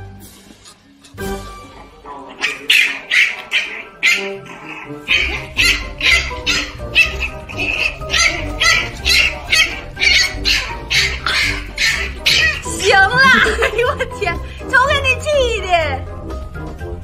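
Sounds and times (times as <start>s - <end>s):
puppy yelping: 2.3s - 13.5s
background music with bass: 5.0s - 17.0s.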